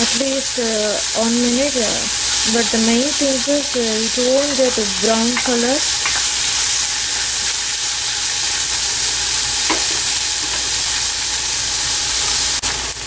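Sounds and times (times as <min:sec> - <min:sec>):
vegetables sizzling in oil: 0:00.0 - 0:13.0
spoon stirring in pan: 0:02.1 - 0:07.6.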